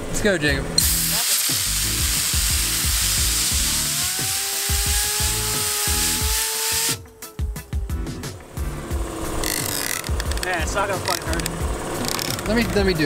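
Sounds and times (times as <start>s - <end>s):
compressed air gun hissing: 0.8s - 7.2s
fidget spinner whine: 1.9s - 10.5s.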